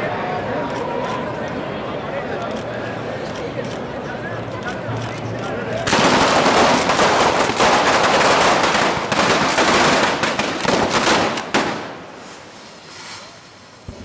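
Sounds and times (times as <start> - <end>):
fireworks and firecrackers crackling: 5.8 - 14.0.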